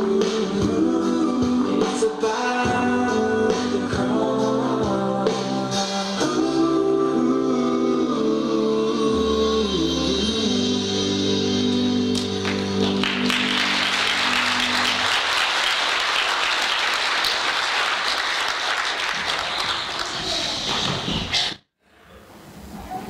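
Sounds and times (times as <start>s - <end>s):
choir singing held chord: 0.0s - 15.3s
congregation applauding: 12.2s - 20.7s.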